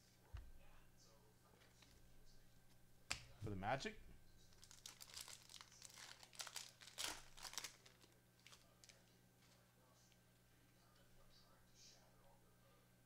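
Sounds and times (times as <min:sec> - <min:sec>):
wrapper crinkling and rustling: 0:04.5 - 0:09.6.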